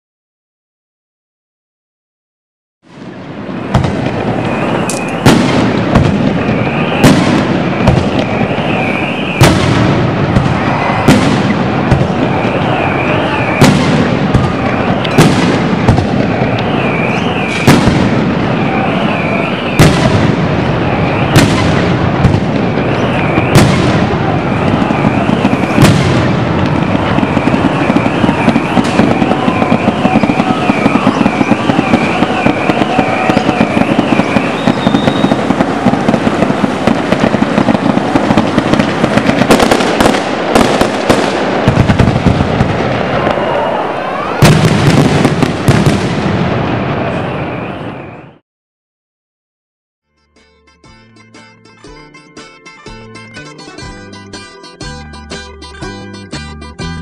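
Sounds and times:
firecrackers crackling: 0:02.9 - 0:48.2
firework bangs: 0:02.9 - 0:48.4
high wavering tone: 0:50.0 - 0:57.0.

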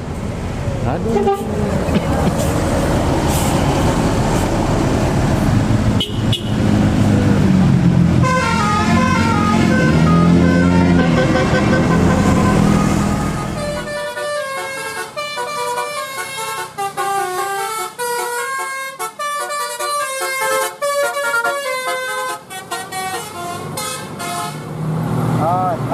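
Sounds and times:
bus engine hum: 0:00.0 - 0:25.9
bus horn playing a tune: 0:01.1 - 0:01.7, 0:06.0 - 0:06.6, 0:08.2 - 0:24.7.

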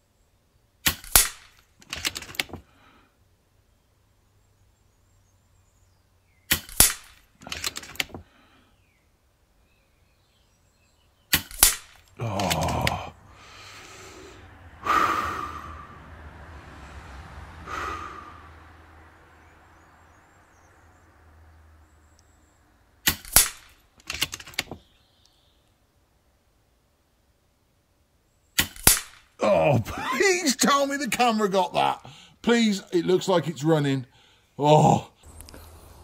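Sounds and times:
air rifle shot crack: 0:00.8 - 0:01.6, 0:06.5 - 0:07.3, 0:11.3 - 0:12.0, 0:23.0 - 0:23.8, 0:28.6 - 0:29.4
handling noise: 0:00.9 - 0:02.7, 0:06.5 - 0:08.3, 0:23.1 - 0:24.9
breathing: 0:02.6 - 0:03.2, 0:08.2 - 0:09.0, 0:13.2 - 0:16.1, 0:16.7 - 0:18.6, 0:32.0 - 0:32.4, 0:34.1 - 0:34.6, 0:35.2 - 0:36.0.

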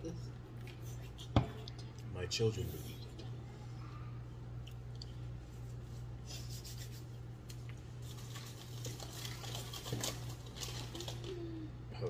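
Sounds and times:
steady low hum: 0:00.0 - 0:12.0
snack packaging crackling: 0:07.4 - 0:11.7.

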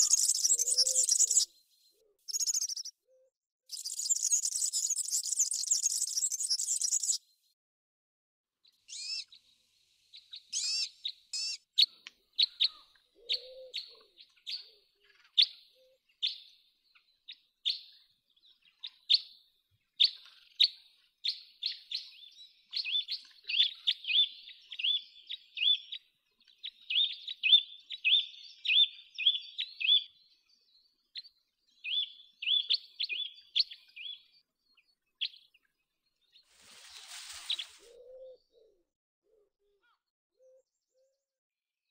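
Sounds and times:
cuckoo calling: 0:00.0 - 0:07.2, 0:08.9 - 0:09.3, 0:10.5 - 0:15.1, 0:36.9 - 0:41.2.

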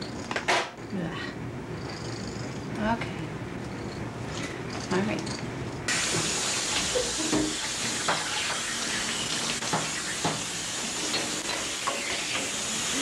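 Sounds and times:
tap water running into bathtub: 0:05.9 - 0:13.0.

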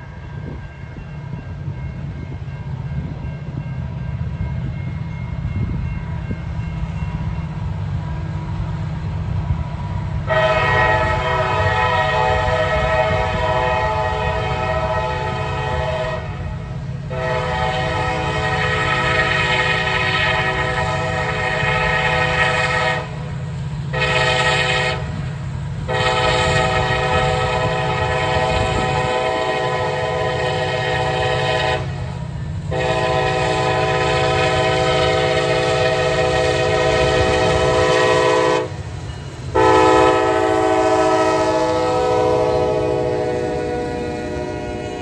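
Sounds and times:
diesel locomotive rumble: 0:00.0 - 0:45.0
locomotive air horn blasts: 0:10.2 - 0:23.3, 0:23.9 - 0:25.2, 0:25.9 - 0:38.9, 0:39.5 - 0:45.0.

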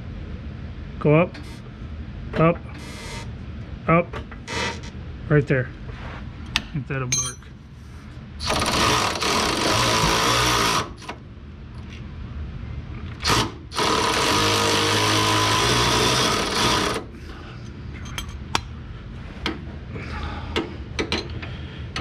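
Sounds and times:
power tool running: 0:08.4 - 0:11.0, 0:13.2 - 0:17.1
hand work clicks and taps: 0:20.6 - 0:21.4.

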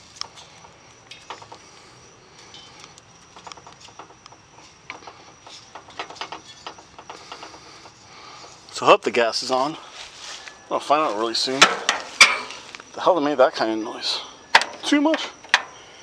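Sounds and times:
faint high-pitched hum: 0:00.0 - 0:16.0
gas grill clicks and knocks: 0:11.5 - 0:12.6, 0:14.5 - 0:15.8.

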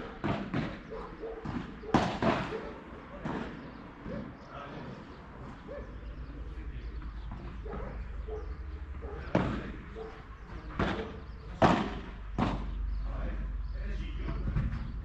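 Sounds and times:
ball hitting racket and court: 0:00.0 - 0:04.4, 0:09.2 - 0:10.1, 0:10.7 - 0:12.8.

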